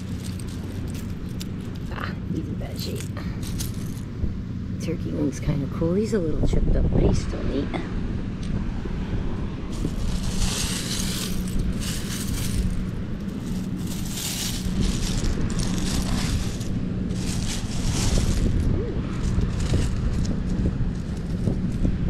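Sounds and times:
seashells clattering: 0.0s - 4.1s, 9.7s - 20.0s
wind rumble on microphone: 0.0s - 22.0s.

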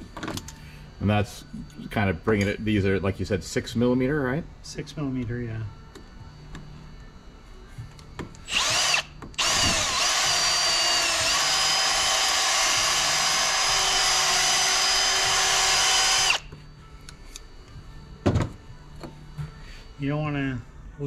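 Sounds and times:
cordless drill spinning: 8.5s - 16.4s.

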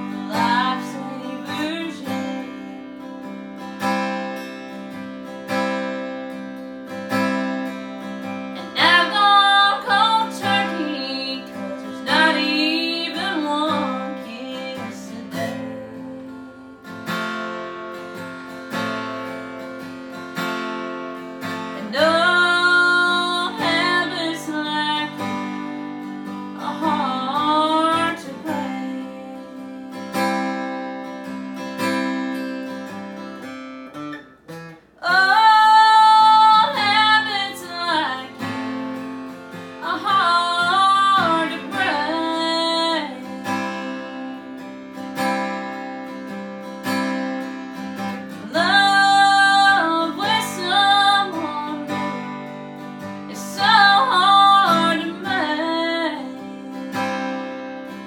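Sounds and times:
woman singing country song: 0.0s - 34.2s, 35.0s - 58.0s
acoustic guitar strumming: 0.0s - 58.0s.

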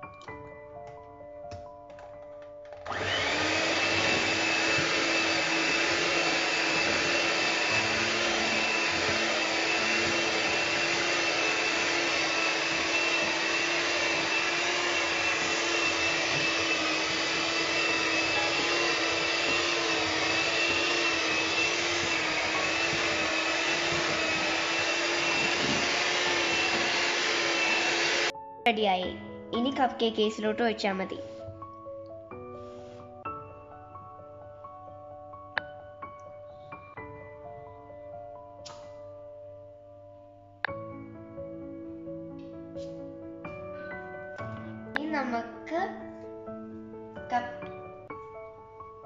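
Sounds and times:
electric hand mixer whirring: 2.8s - 28.3s
beaters whisking batter in bowl: 3.2s - 28.3s.

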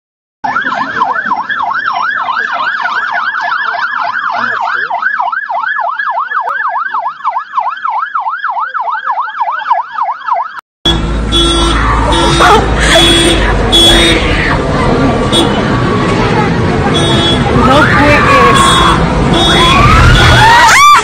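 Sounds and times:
electronic siren yelping: 0.4s - 10.6s, 17.6s - 21.0s.

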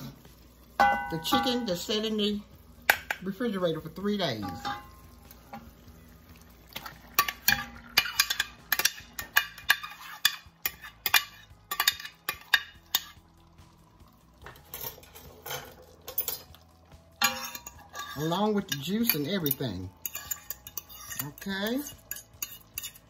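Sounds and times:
metal spoon scraping ceramic dish: 7.2s - 13.2s, 17.2s - 23.0s.

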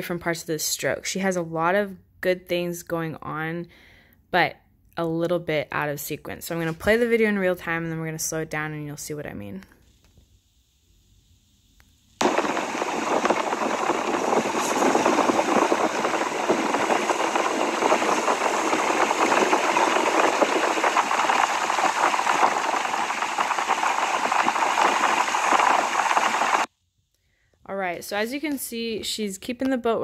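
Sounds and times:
motorboat engine running: 12.2s - 26.7s
water rushing: 12.2s - 26.7s.

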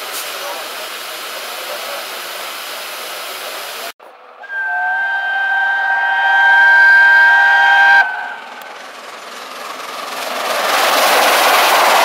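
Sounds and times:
steam hissing: 0.0s - 8.6s, 9.7s - 12.0s
steam whistle blast: 4.4s - 8.6s.

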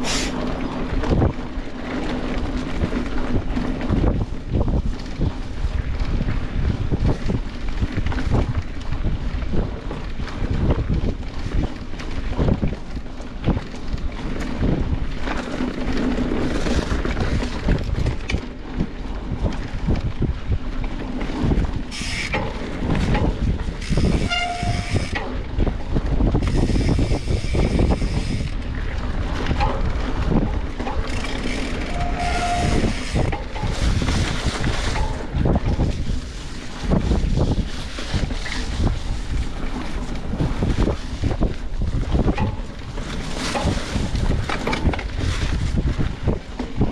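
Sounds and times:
bike knocking and rattling: 0.0s - 46.9s
bike tyres rumbling on trail: 0.0s - 46.9s
wind on microphone: 0.0s - 46.9s
brief squeaks: 24.0s - 25.1s, 31.8s - 33.1s.

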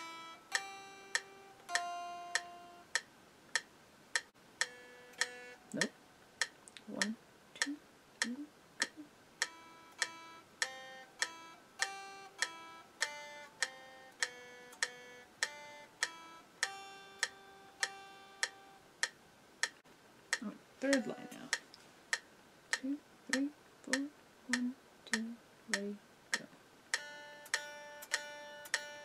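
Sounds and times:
electric guitar single notes: 0.0s - 2.9s, 4.6s - 5.9s
metronome clicks: 0.0s - 29.0s.

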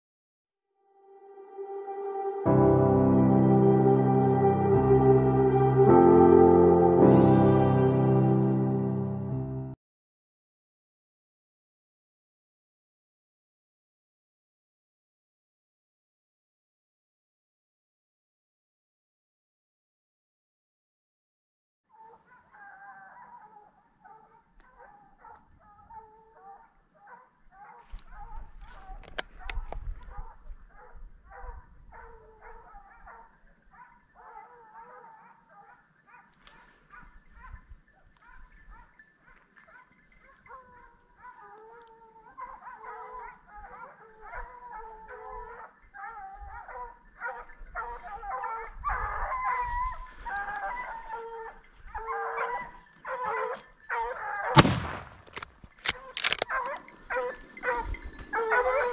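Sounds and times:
hounds baying and howling: 21.9s - 54.6s, 55.3s - 58.9s.

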